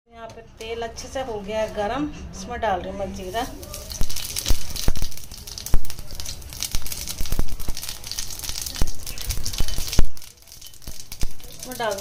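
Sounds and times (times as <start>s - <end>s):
seeds crackling in hot oil: 3.2s - 12.0s.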